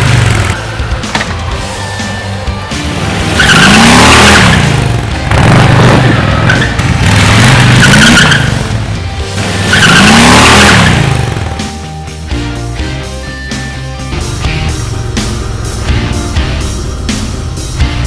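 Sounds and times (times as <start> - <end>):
background music: 0.0 - 18.0
motorcycle riding past: 2.8 - 11.6.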